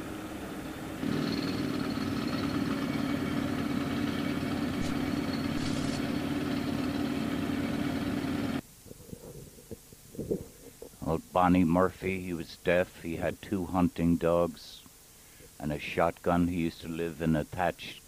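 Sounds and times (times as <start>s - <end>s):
vehicle engine running: 3.0s - 8.6s.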